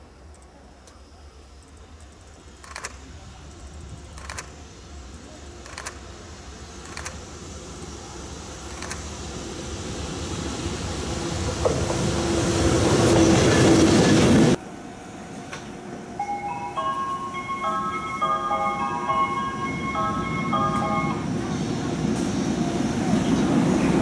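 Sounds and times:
freight train rumble: 0.0 - 24.0
locomotive hum: 0.0 - 24.0
wheels clacking on rails: 5.3 - 7.4, 8.5 - 9.4, 11.3 - 14.6, 16.9 - 24.0.

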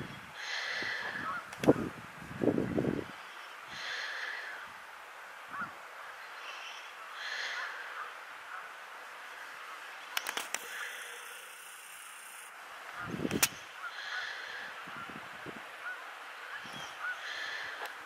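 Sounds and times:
geese honking: 5.4 - 11.5, 12.8 - 15.1, 15.7 - 17.9
sharp clicks: 10.1 - 12.5, 13.2 - 13.6.

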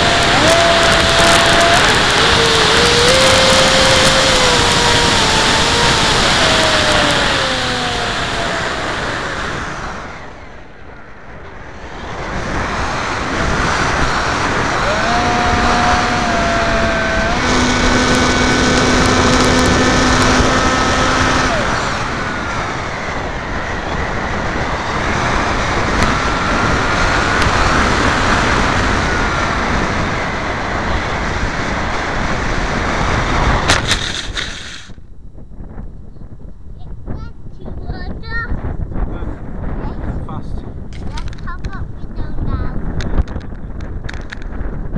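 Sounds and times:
electric motor and propeller whining: 0.0 - 35.1
wind rush on microphone: 0.0 - 44.9
plane rattling in grass: 33.5 - 35.0, 40.9 - 41.8.

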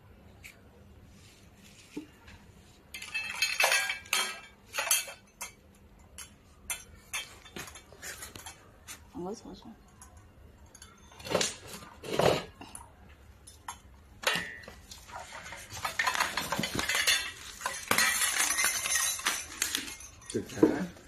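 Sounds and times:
metal parts clinking: 2.9 - 8.6, 13.5 - 21.0.

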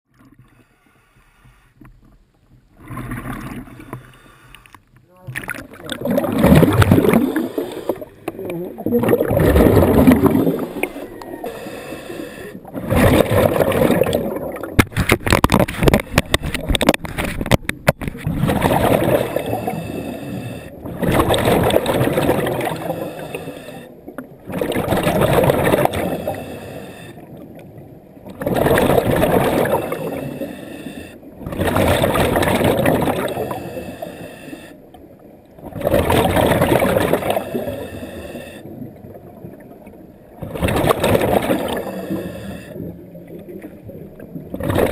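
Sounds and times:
exhaled air bubbling underwater: 2.6 - 4.7, 5.3 - 44.9
diver inhaling: 3.6 - 4.8, 6.6 - 8.5, 9.3 - 14.2, 19.2 - 20.8, 22.6 - 24.0, 25.8 - 27.4, 29.6 - 31.3, 33.0 - 34.9, 37.2 - 38.7, 41.6 - 43.0.

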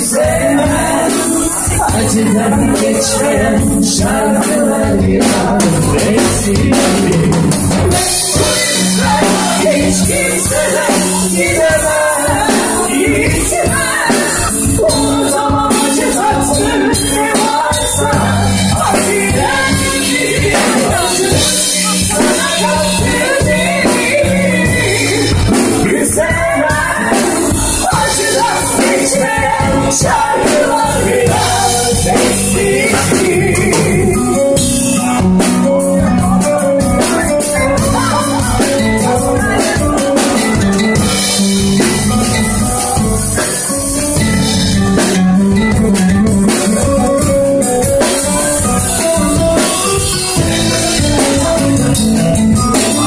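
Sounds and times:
woman singing into a microphone: 0.0 - 35.2, 36.0 - 41.4
drum beat: 0.0 - 53.0
keyboard: 0.0 - 53.0.

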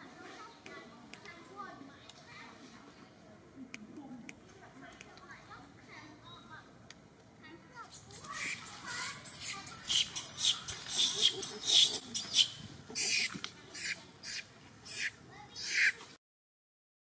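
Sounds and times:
baby monkey squealing: 7.9 - 16.0.

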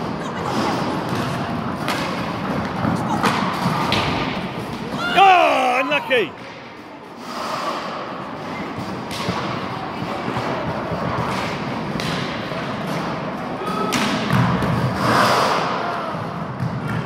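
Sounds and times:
skates rolling: 0.0 - 6.2, 14.6 - 17.0.

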